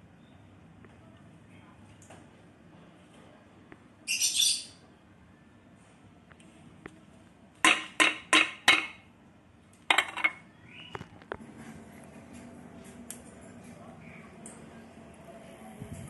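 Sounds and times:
fan clattering on tiled floor: 7.6 - 9.0, 9.8 - 10.4.

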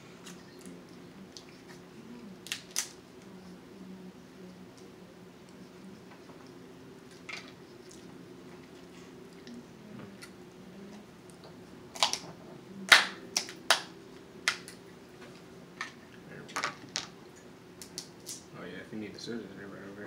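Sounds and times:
crab shells cracking: 2.4 - 3.0, 11.9 - 14.8, 15.8 - 17.1, 17.8 - 18.5.

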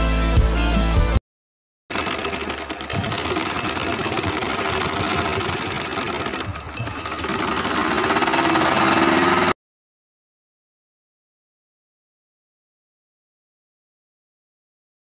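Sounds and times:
sewing machine stitching: 1.9 - 9.6.

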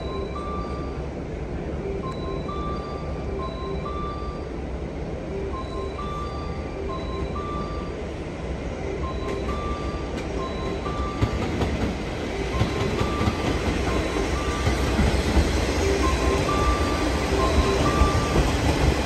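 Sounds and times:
electric train rumble: 0.0 - 19.0
rail clicks: 5.5 - 19.0.

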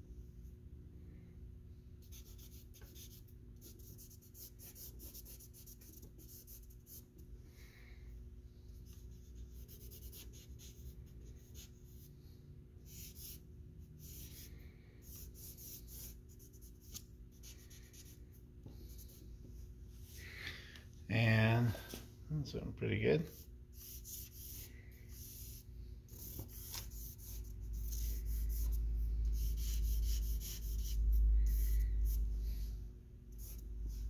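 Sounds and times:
low electrical hum: 0.0 - 34.0
charcoal scratching on paper: 2.0 - 7.0, 8.8 - 12.0, 12.8 - 13.4, 14.0 - 18.2, 23.2 - 32.2, 33.3 - 34.0.

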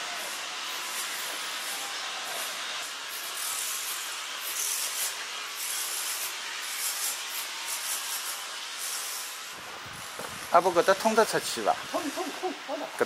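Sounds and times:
steady hiss: 0.0 - 13.0
footsteps on pavement: 9.6 - 11.1.

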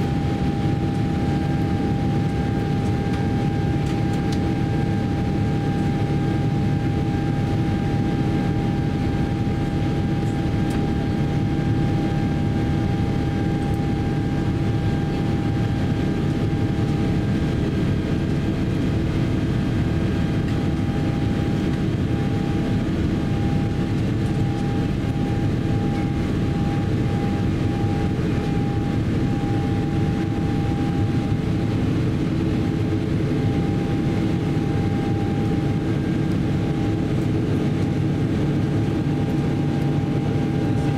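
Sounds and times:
aircraft cabin deep roar: 0.0 - 40.9
steady high whine: 0.0 - 40.9.

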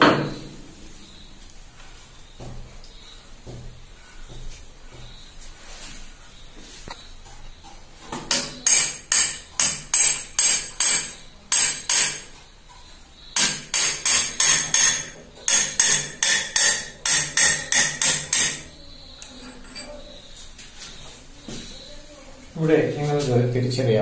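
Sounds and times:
hammer striking metal shaft: 8.3 - 12.3, 13.4 - 18.7.

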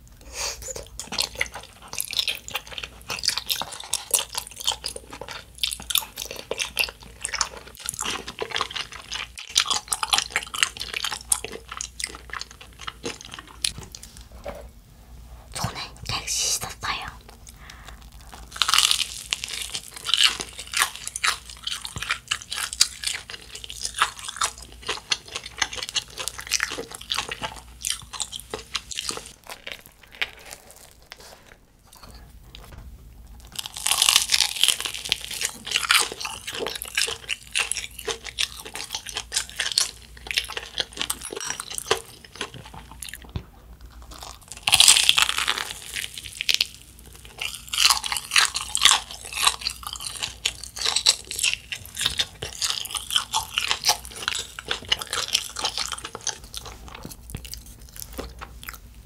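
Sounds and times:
chewing crispy coating: 0.5 - 14.3, 17.4 - 32.8, 33.4 - 59.0
crunching bites of fried food: 0.9 - 14.0, 17.8 - 31.6, 33.4 - 58.9.

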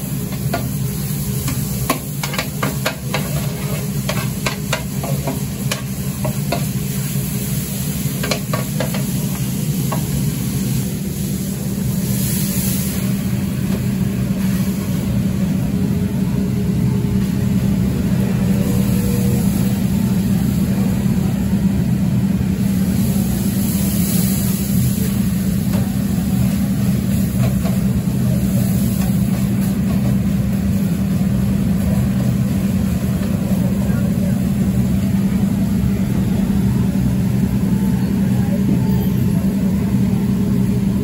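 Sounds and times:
flatbread sizzling on griddle: 0.0 - 15.9, 17.2 - 38.2
kitchen machinery humming: 0.0 - 41.0.

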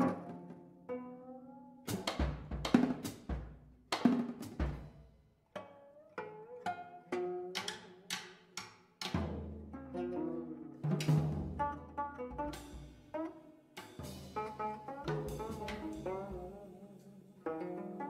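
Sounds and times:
plucked zither notes: 5.6 - 8.0, 9.2 - 18.0.

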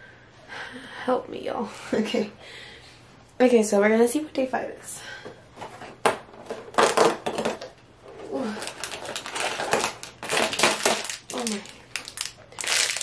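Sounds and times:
plastic bag crinkling: 8.2 - 13.0.

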